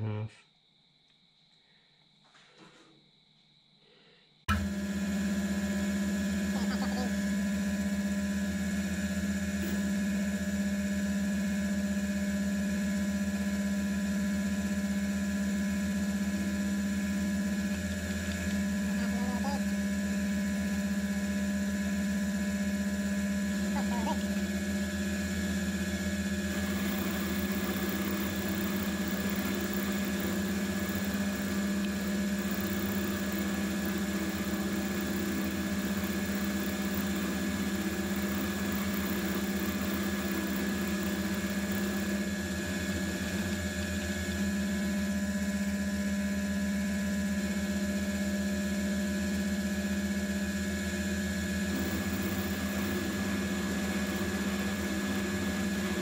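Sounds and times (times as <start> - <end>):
mill drill motor humming: 4.5 - 56.0
end mill cutting metal: 23.4 - 44.7, 51.0 - 56.0.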